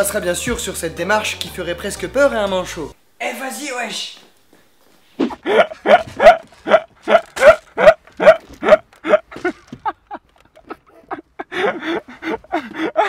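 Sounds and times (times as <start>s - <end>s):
man laughing hard: 5.3s - 13.0s.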